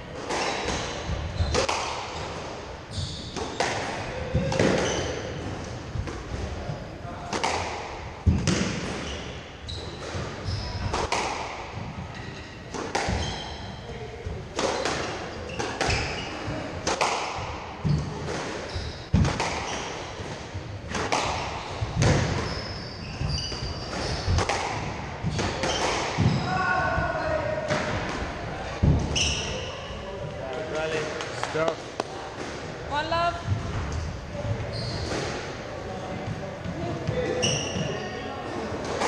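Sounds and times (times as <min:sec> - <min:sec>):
squash ball hitting rackets and walls: 0:00.1 - 0:29.7, 0:33.4 - 0:38.0
shoe squeaks on wooden floor: 0:00.3 - 0:03.8, 0:04.6 - 0:05.4, 0:09.0 - 0:11.0, 0:12.1 - 0:13.9, 0:14.7 - 0:16.6, 0:17.8 - 0:20.2, 0:21.6 - 0:24.4, 0:25.2 - 0:27.4, 0:29.1 - 0:30.0, 0:33.8 - 0:35.3, 0:37.1 - 0:38.3.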